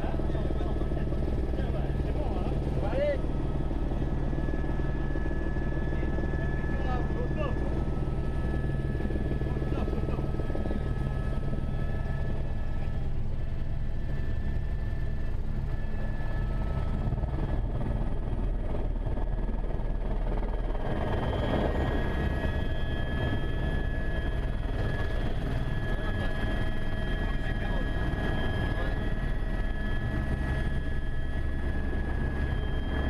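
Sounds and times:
helicopter turbine and rotor drone: 0.0s - 33.0s.

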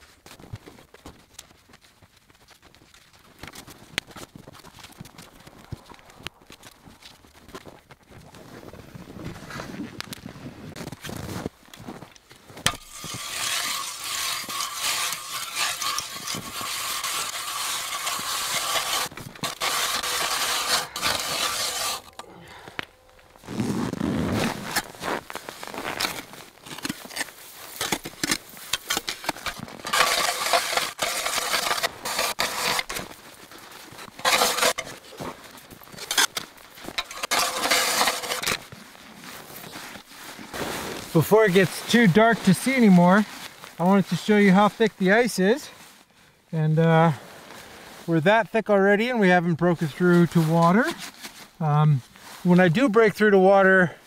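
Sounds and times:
ice auger grinding ice: 12.6s - 39.8s, 40.9s - 43.2s.

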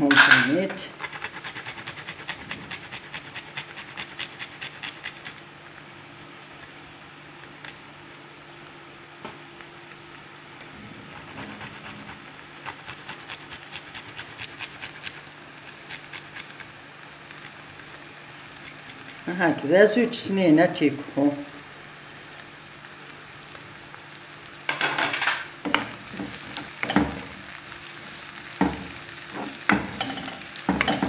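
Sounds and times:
garlic scraping on a metal grater: 0.8s - 5.4s, 11.1s - 16.7s.

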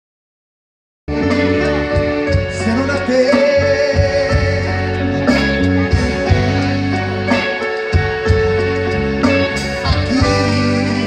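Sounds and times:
bass: 1.1s - 11.0s
drums: 1.1s - 11.0s
electric guitar: 1.1s - 11.0s
person singing: 1.2s - 8.0s, 9.3s - 11.0s.

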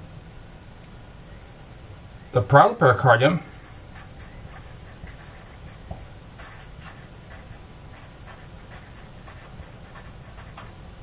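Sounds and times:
marker pen scratching: 3.5s - 10.8s.

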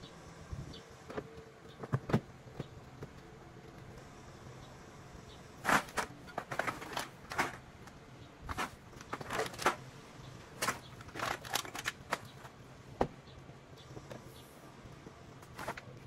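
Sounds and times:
plastic bags rustling: 5.6s - 7.7s, 8.4s - 9.9s, 10.5s - 12.5s.

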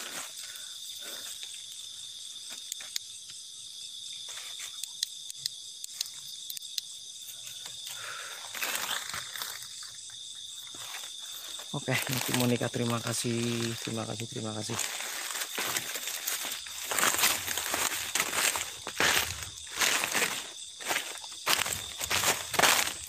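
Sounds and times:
crickets chirring: 0.0s - 23.0s
sharp clicks: 4.8s - 6.9s
rustle through undergrowth: 7.2s - 23.0s.

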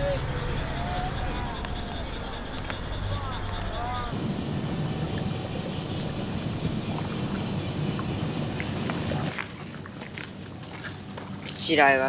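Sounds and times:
low rumble: 0.0s - 9.3s
insects chirring: 0.1s - 12.0s.

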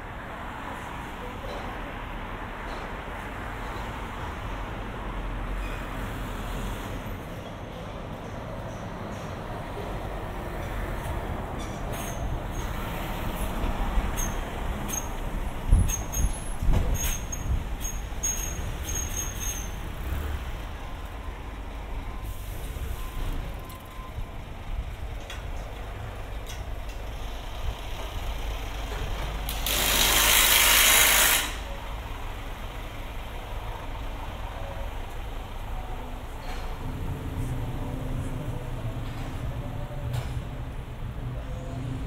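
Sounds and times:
street traffic rumble: 0.0s - 42.0s
air brakes hissing: 22.2s - 23.6s.

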